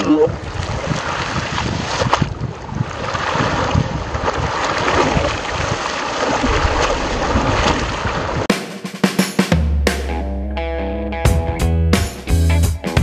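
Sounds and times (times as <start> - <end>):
children splashing river water: 0.0 - 8.5.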